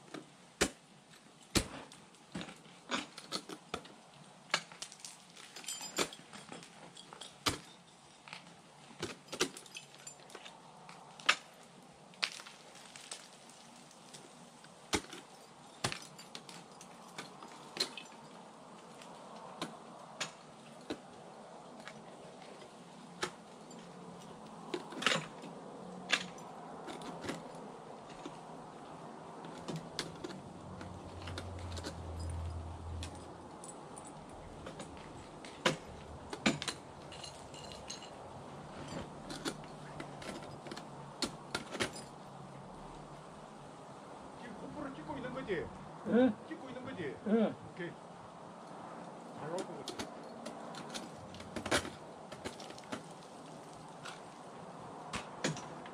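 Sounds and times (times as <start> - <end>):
metallic jingle of hardware: 5.5 - 8.3, 36.4 - 38.2.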